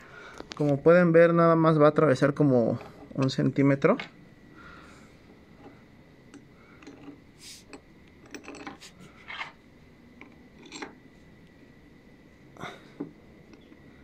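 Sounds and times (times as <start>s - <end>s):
metal screws clicking and rattling: 6.3s - 9.6s, 10.2s - 11.0s.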